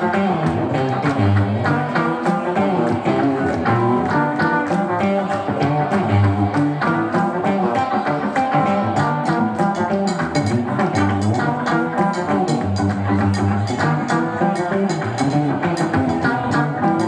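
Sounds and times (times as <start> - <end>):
electric guitar: 0.0 - 17.0
funk band playing: 0.0 - 17.0.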